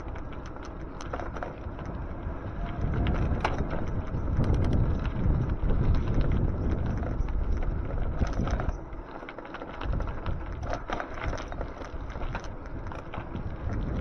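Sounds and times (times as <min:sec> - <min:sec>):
bike clicks and rattles: 0:00.0 - 0:14.0
wind buffeting microphone: 0:00.0 - 0:14.0.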